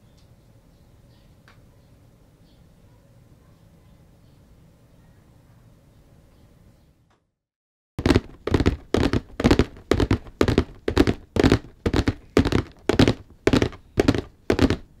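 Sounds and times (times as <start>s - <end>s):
heavy thuds: 8.0s - 15.0s.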